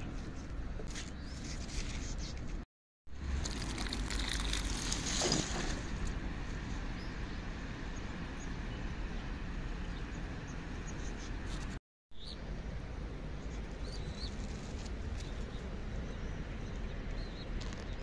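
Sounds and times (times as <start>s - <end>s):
water pouring onto soil: 3.2s - 6.1s.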